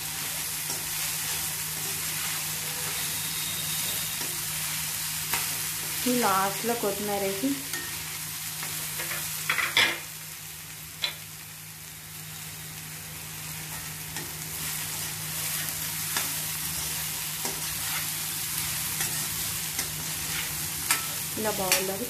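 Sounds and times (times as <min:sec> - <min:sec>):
beans sizzling in a pan: 0:00.0 - 0:22.0
spatula scraping a pan: 0:00.6 - 0:06.0, 0:14.2 - 0:21.9.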